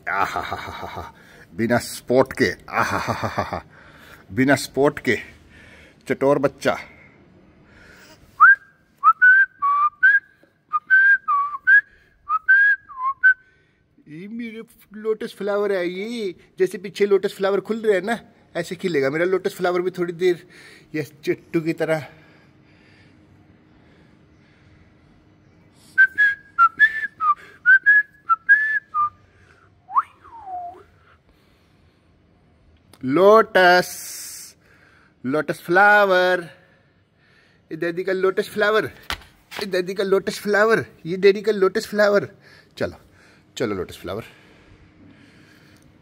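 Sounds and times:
person whistling a tune: 8.4s - 13.4s, 26.0s - 29.2s, 29.9s - 30.9s.

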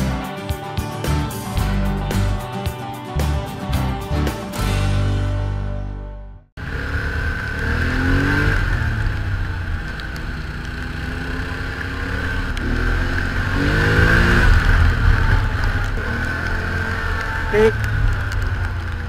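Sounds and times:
atv engine running: 6.6s - 19.0s.

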